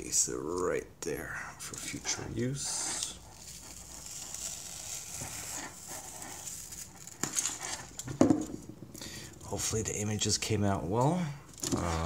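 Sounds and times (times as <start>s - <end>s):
tape peeled off plastic: 1.6s - 8.6s.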